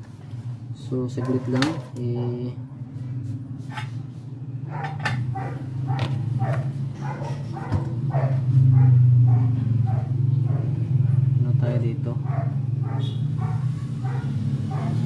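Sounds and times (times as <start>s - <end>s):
dog barking: 1.1s - 2.4s, 4.7s - 11.4s, 12.2s - 15.0s.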